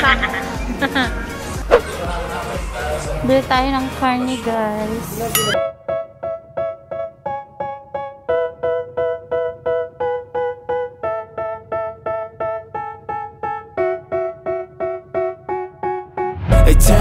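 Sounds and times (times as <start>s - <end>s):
electric piano chords: 5.4s - 16.4s.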